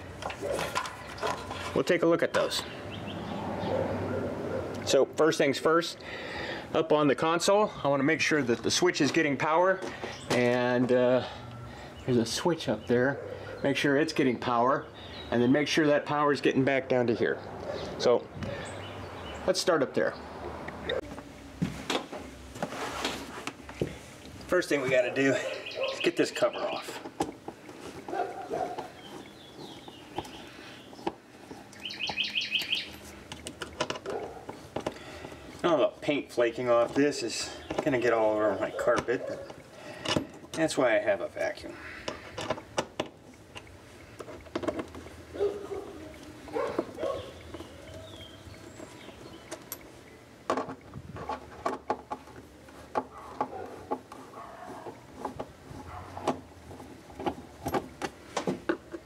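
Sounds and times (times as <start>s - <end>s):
bird chirping: 0.0s - 4.6s, 14.8s - 15.7s, 17.3s - 21.0s, 24.7s - 27.0s, 28.1s - 33.5s, 45.4s - 50.4s.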